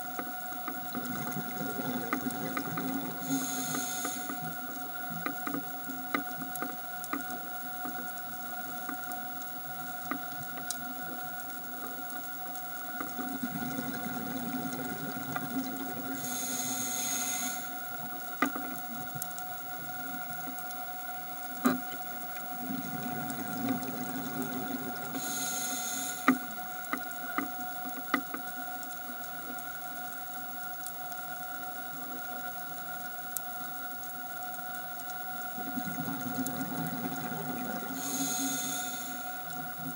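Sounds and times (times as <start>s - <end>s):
faint steady hum: 0.0s - 39.9s
regulator inhale hiss: 3.0s - 5.6s, 16.0s - 18.7s, 24.5s - 27.7s, 36.8s - 39.9s.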